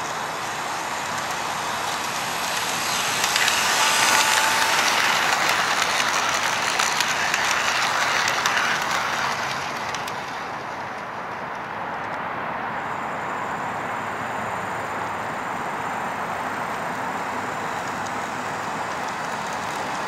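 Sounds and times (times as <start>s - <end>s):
clicking over rail joints: 0.0s - 12.2s, 16.6s - 20.0s
model train rolling on track: 0.0s - 20.0s.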